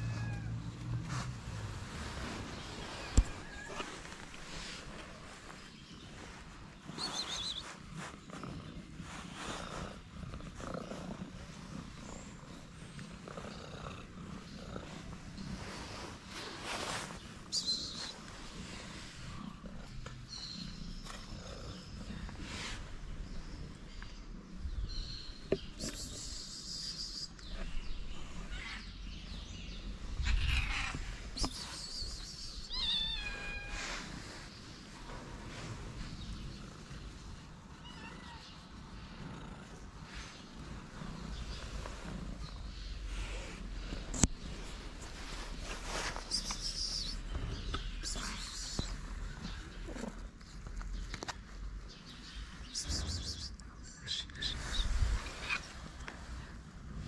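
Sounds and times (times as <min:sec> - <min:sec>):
cat meowing: 0:00.0 - 0:01.0, 0:03.0 - 0:04.1, 0:32.7 - 0:33.9, 0:37.8 - 0:38.6
soft rustling: 0:00.1 - 0:12.6, 0:14.8 - 0:20.2, 0:40.0 - 0:47.4
cat purring: 0:00.3 - 0:17.1, 0:18.0 - 0:26.0, 0:38.5 - 0:50.9
cat chirping: 0:30.2 - 0:33.8.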